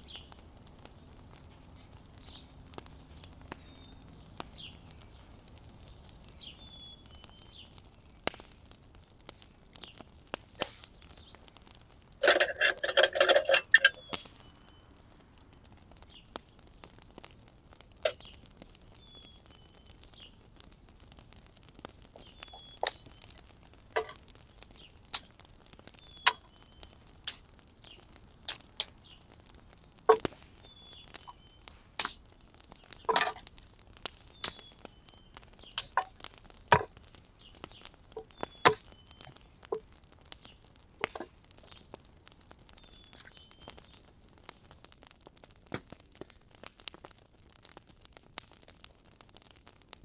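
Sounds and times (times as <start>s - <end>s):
small bird chirping: 0.0s - 0.4s, 1.6s - 11.6s, 12.2s - 15.0s, 18.1s - 20.4s, 22.1s - 25.2s, 25.8s - 33.3s, 34.1s - 36.6s, 37.2s - 39.6s, 40.3s - 40.7s, 41.5s - 42.0s, 42.7s - 44.1s
sharp irregular clicks and knocks: 9.2s - 14.4s, 21.7s - 29.4s, 30.0s - 45.0s, 45.6s - 47.2s.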